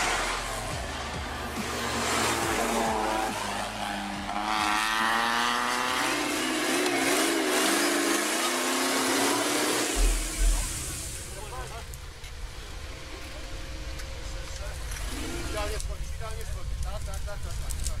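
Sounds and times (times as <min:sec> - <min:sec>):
off-road vehicle engine revving: 0:00.0 - 0:16.1.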